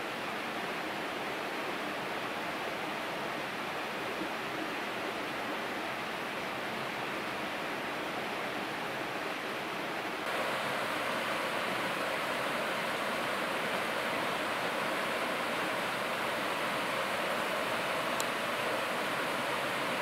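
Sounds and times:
river rushing over weir: 0.0s - 20.0s.

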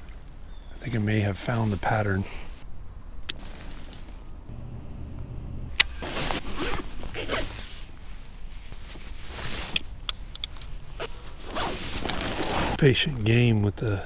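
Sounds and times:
scraping and rustling: 10.6s - 12.8s.

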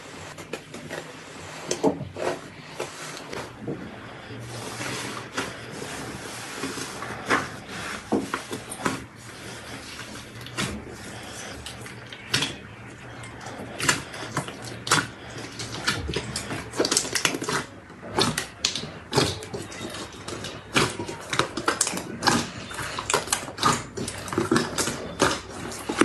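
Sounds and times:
sticky pops and crackles of slime: 13.8s - 26.0s.

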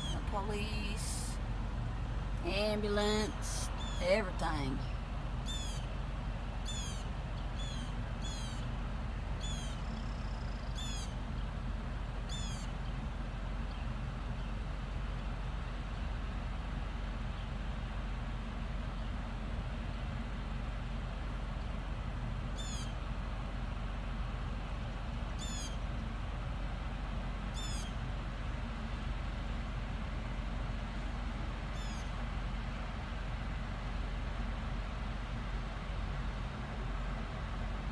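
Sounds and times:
bird calling: 0.0s - 0.3s, 3.3s - 5.9s, 6.6s - 8.7s, 9.4s - 11.2s, 12.3s - 12.7s, 22.5s - 23.0s, 25.4s - 25.8s, 27.5s - 28.0s, 31.7s - 32.2s
low background rumble: 0.0s - 37.9s.

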